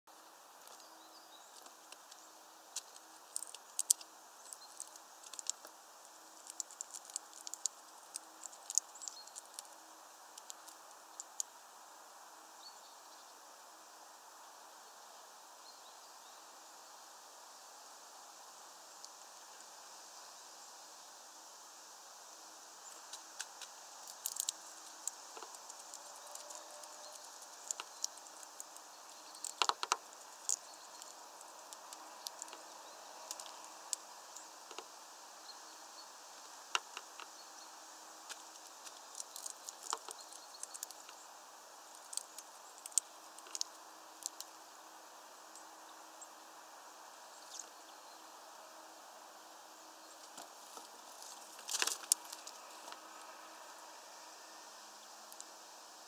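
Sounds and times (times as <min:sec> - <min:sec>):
faint steady hiss: 0:00.1 - 0:56.0
bird cracking seeds: 0:00.6 - 0:11.5, 0:22.9 - 0:35.0, 0:36.6 - 0:37.4, 0:38.2 - 0:41.2, 0:41.9 - 0:44.6, 0:50.2 - 0:53.4.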